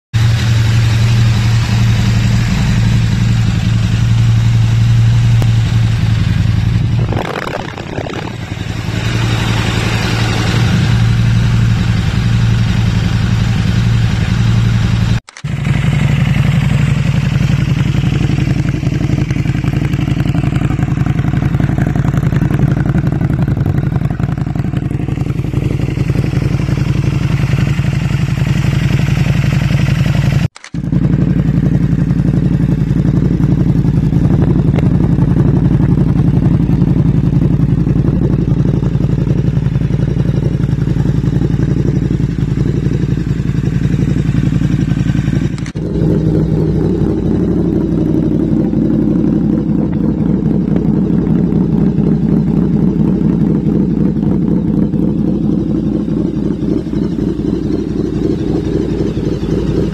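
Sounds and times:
motorcycle engine idling: 0.2s - 59.9s.

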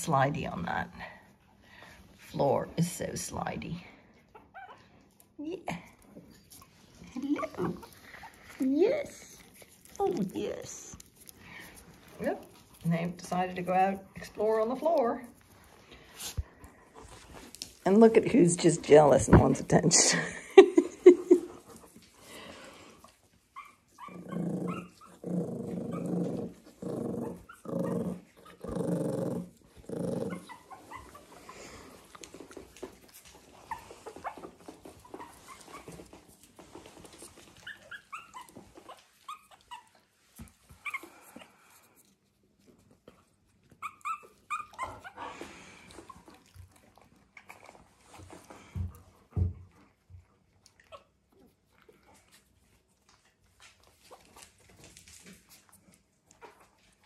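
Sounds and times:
puppies squeaking and whimpering: 4.2s - 5.2s, 6.2s - 10.4s, 23.4s - 41.8s, 43.6s - 46.4s
dog growling: 24.0s - 32.3s.

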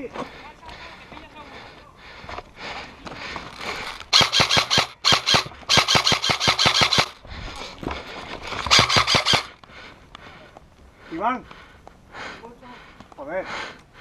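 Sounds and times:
airsoft gun firing full auto: 4.1s - 7.2s, 8.7s - 9.5s.

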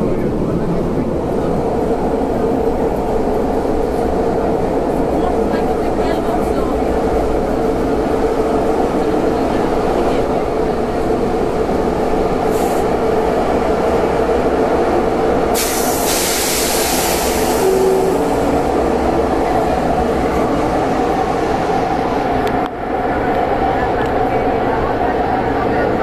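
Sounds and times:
train rumble and hum: 0.0s - 26.0s
train hiss: 12.4s - 13.0s, 15.5s - 18.6s.

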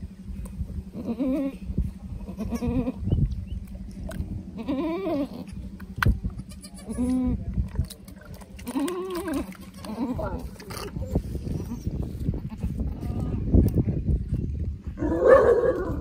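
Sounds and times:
goat bleating: 1.0s - 1.6s, 2.2s - 3.0s, 4.5s - 5.6s, 6.3s - 7.4s, 8.6s - 13.4s.

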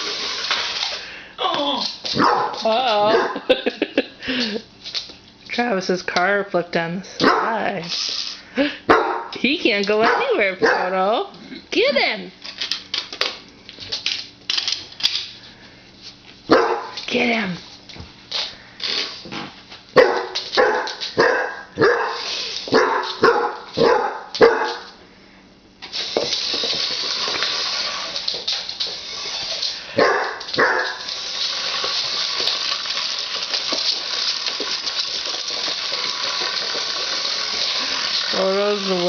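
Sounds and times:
steady hissing whir: 0.0s - 11.8s, 12.4s - 39.0s
dog barking: 2.2s - 3.4s, 7.2s - 7.6s, 8.9s - 9.3s, 10.0s - 10.9s, 16.5s - 17.0s, 20.0s - 25.0s, 30.0s - 31.1s.

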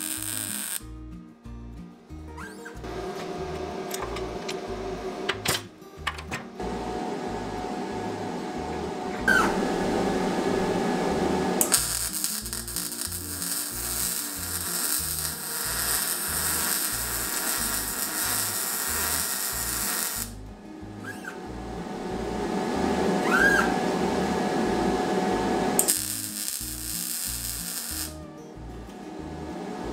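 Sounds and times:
welding arc crackling: 0.0s - 0.8s, 11.6s - 20.4s, 25.8s - 28.2s
background music: 0.0s - 29.9s.

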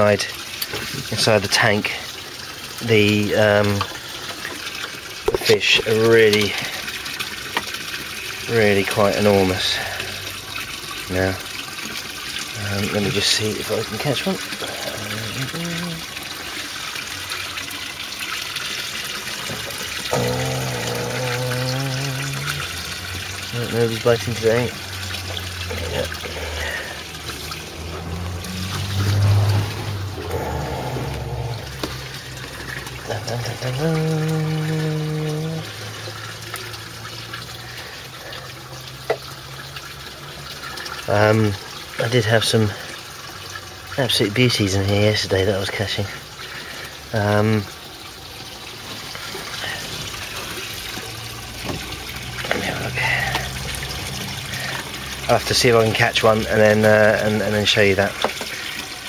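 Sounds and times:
water trickling and splashing: 0.0s - 59.0s.

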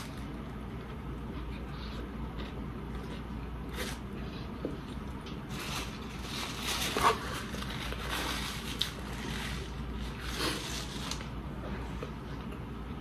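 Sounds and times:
paper wrapper crinkling: 5.4s - 11.4s.

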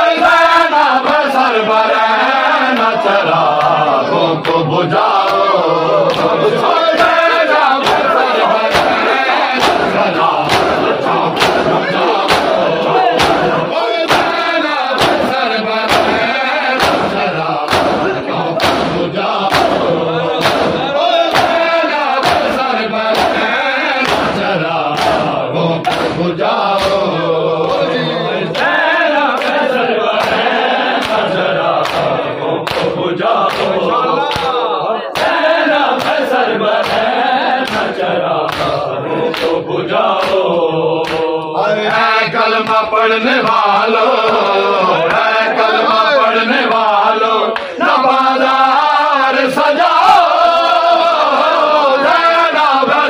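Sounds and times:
crowd of men chanting: 0.0s - 53.0s
hands striking chests: 7.8s - 14.4s, 15.0s - 23.4s, 24.0s - 26.2s.

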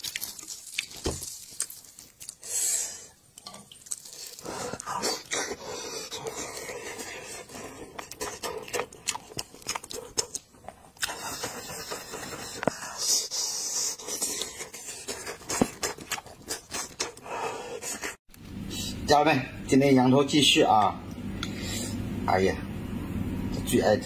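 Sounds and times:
person chewing with mouth smacks: 0.0s - 2.5s, 3.3s - 17.2s.

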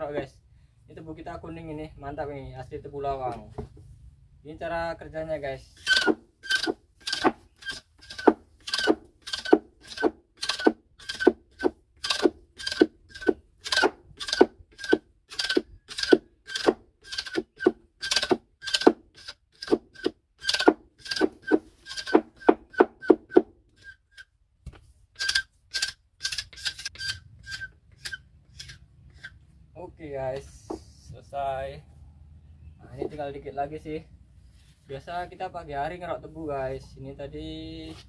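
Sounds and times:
scraper rasping sugarcane: 5.8s - 24.3s, 25.2s - 29.4s.

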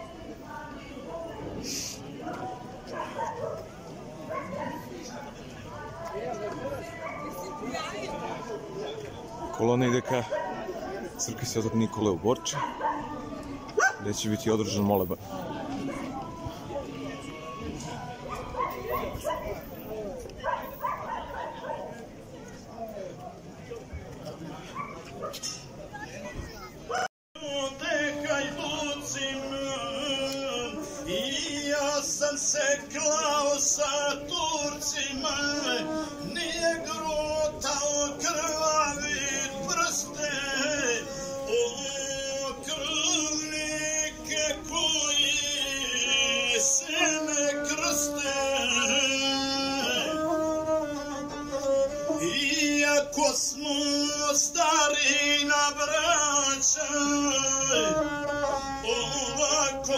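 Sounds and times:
bowed one-string fiddle: 33.7s - 59.9s.

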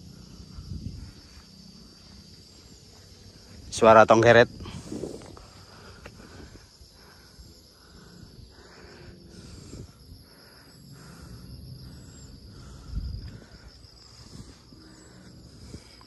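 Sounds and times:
cicadas buzzing: 0.0s - 16.0s.

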